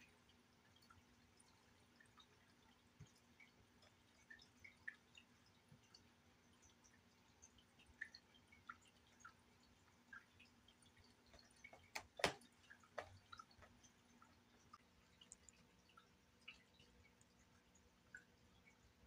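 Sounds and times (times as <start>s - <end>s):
faint ticks: 12.8s - 18.9s.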